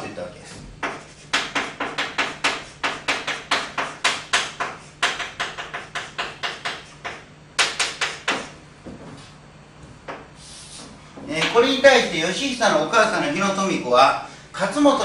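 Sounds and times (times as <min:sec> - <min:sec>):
chalk tapping and scraping on blackboard: 0:00.8 - 0:09.3.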